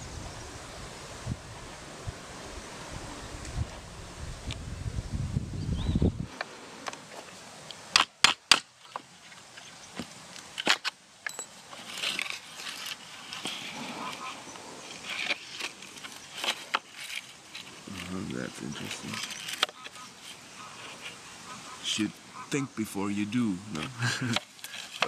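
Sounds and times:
wind buffeting microphone: 0.0 - 6.4
scratchy handling noises: 8.8 - 21.3, 23.7 - 25.0.

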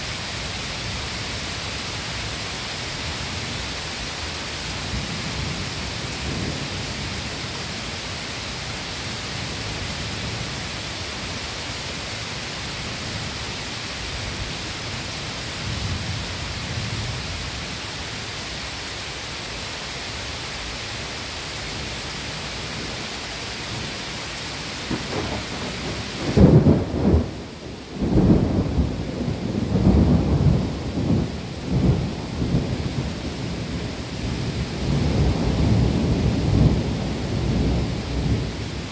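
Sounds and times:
steady rain hiss: 0.0 - 38.9
low thunder peals: 24.9 - 38.4.

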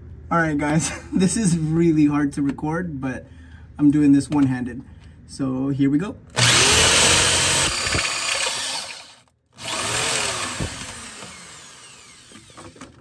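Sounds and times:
drill cutting through steel: 6.4 - 12.8.

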